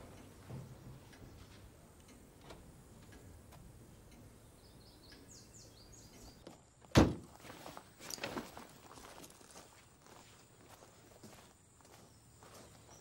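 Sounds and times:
faint ticking: 0.0 - 6.4.

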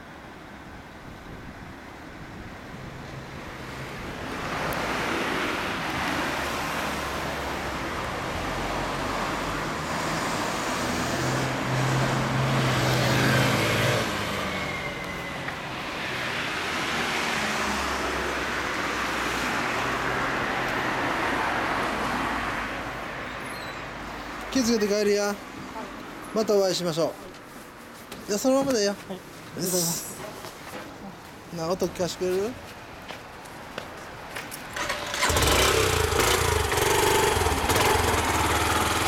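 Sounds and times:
road traffic passing: 0.0 - 39.0.

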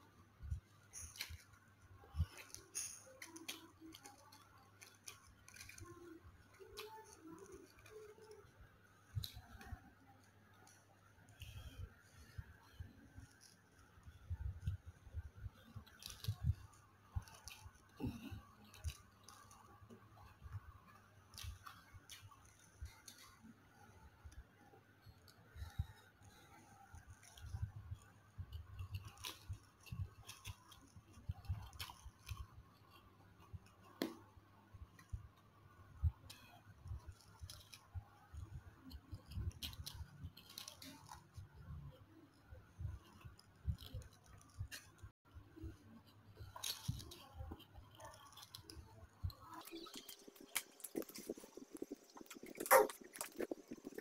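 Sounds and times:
noodles slurped and chewed: 46.4 - 54.0.

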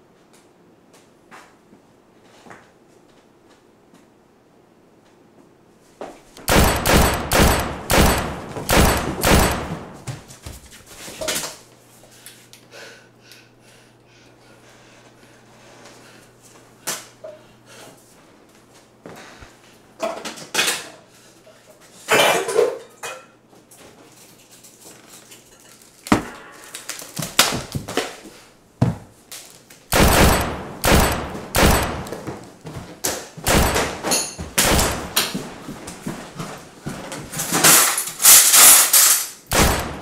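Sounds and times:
knocks bangs and clattering: 6.5 - 10.3, 29.9 - 32.4, 33.4 - 35.5, 39.5 - 40.0.

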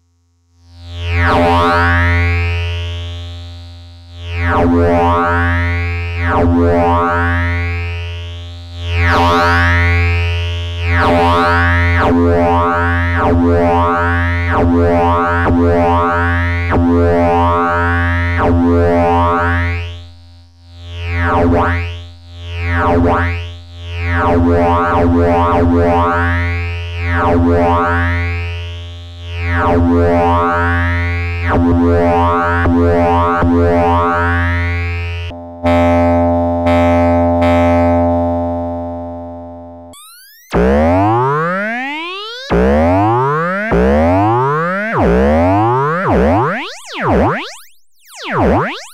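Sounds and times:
synthesizer tone sweeping brightness: 40.0 - 48.9.

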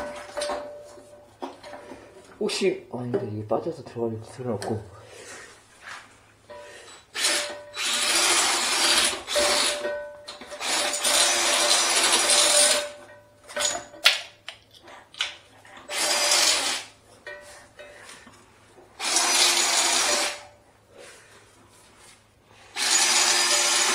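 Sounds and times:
power drill spinning drain cleaner: 7.1 - 9.9, 10.5 - 13.0, 15.9 - 16.9, 19.0 - 20.5, 22.7 - 23.9.

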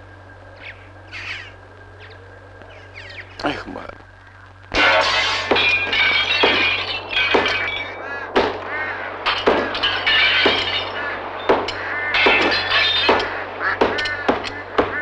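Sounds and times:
glass cracking and shards clinking: 4.7 - 15.0
sharp knocks on glass: 5.0 - 8.6, 9.3 - 15.0.

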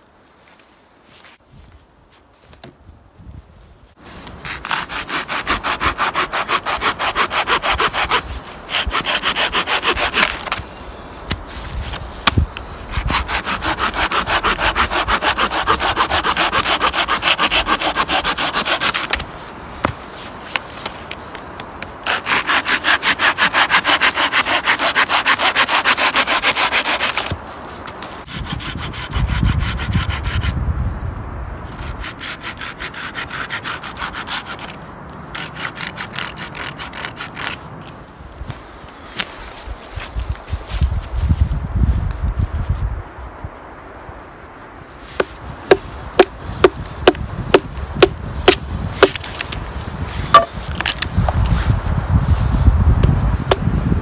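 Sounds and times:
hand saw cutting a branch: 4.2 - 10.7, 11.3 - 19.3, 22.0 - 27.4, 28.2 - 30.6, 31.7 - 37.6, 45.0 - 53.8.

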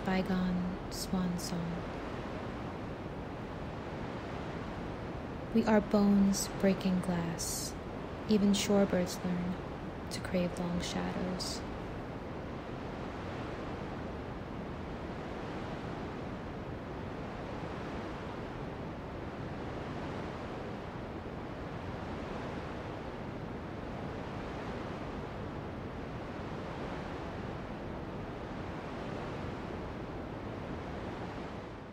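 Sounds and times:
ocean waves breaking: 0.0 - 31.8.

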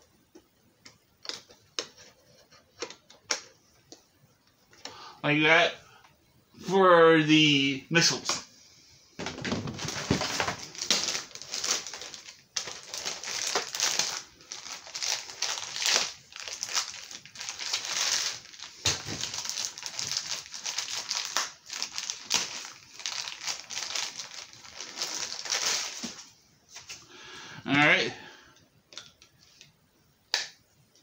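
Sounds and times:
packaging crinkling: 9.2 - 26.3.

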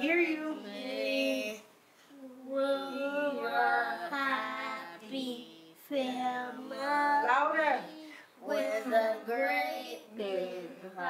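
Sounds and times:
girls singing: 2.6 - 11.0.

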